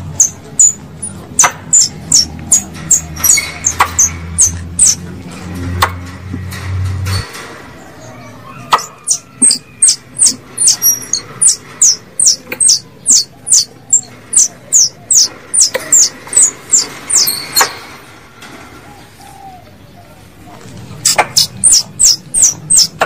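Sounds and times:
squirrel lure call chirps: 0.2s - 5.0s, 8.9s - 17.7s, 21.1s - 23.0s.

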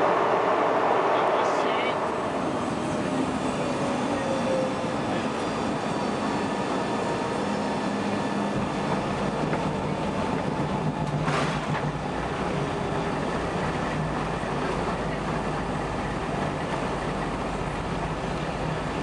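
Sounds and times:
jet engines whining: 0.0s - 10.0s.

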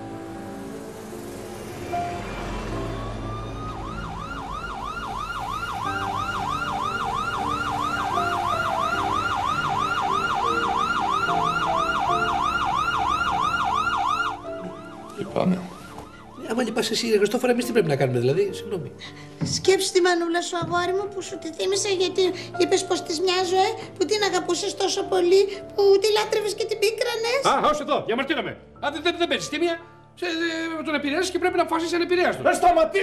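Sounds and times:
soft background music: 0.0s - 33.0s
emergency siren wailing and yelping: 2.7s - 17.0s.

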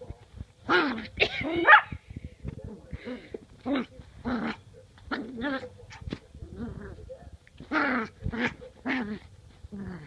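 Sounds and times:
puppy growling and yipping: 3.7s - 10.0s.

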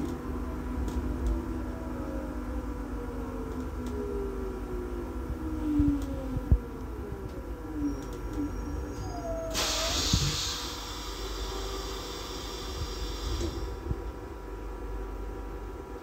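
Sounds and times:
railcar low rumble: 0.0s - 16.0s
brief squeal: 7.8s - 10.7s
compressed air hiss: 9.5s - 13.8s.

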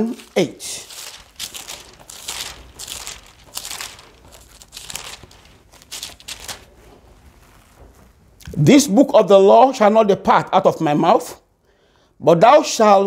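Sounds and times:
pages rustling as turned: 0.0s - 8.4s.

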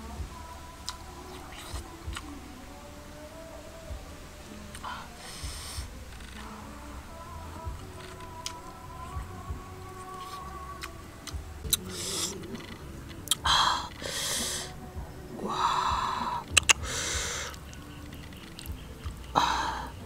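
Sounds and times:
breathy puffs of air: 4.0s - 6.4s, 11.7s - 12.8s, 13.4s - 14.8s, 15.4s - 17.8s, 19.3s - 20.0s
person chewing: 10.2s - 13.4s, 16.5s - 17.8s
lip-smacking clicks: 16.4s - 19.4s.

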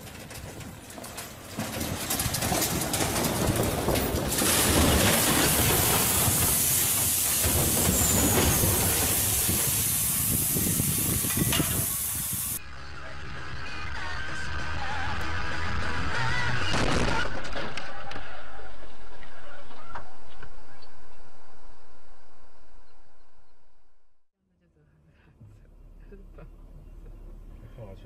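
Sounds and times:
boulders tumbling and crashing: 0.0s - 10.0s
crackling debris: 0.0s - 12.6s
steady hiss: 5.3s - 12.6s.

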